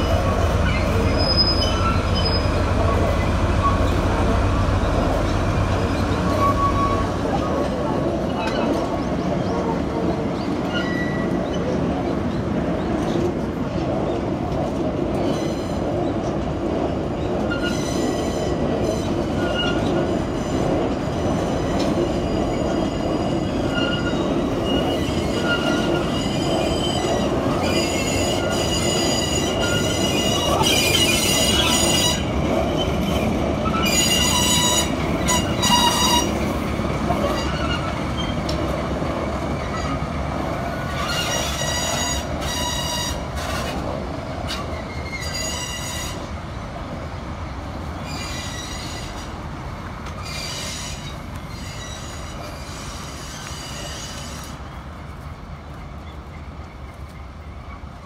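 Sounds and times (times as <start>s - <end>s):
steel wheels squealing: 0.0s - 7.6s, 10.4s - 12.4s, 17.2s - 36.4s, 37.2s - 38.5s, 40.7s - 43.8s, 44.5s - 46.3s, 48.0s - 49.3s, 50.2s - 54.6s
low train rumble: 0.0s - 58.0s.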